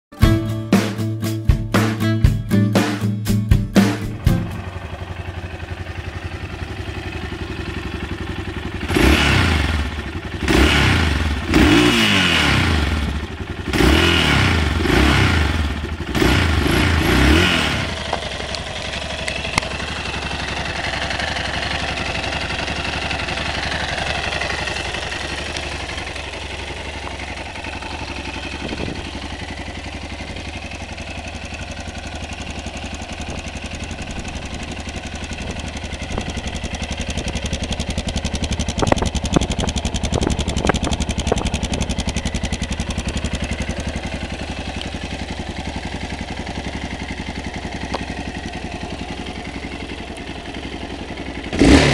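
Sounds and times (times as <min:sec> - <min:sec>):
motorcycle engine idling: 0:03.6 - 0:51.9
motorcycle engine revving: 0:03.8 - 0:51.9.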